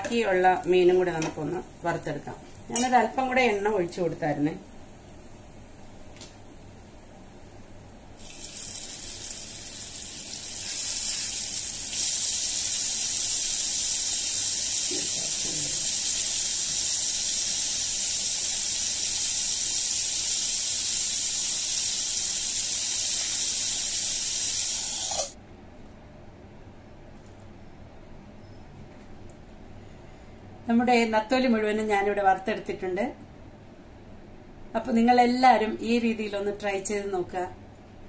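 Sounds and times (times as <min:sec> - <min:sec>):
fish sizzling in hot oil: 0:08.2 - 0:25.4.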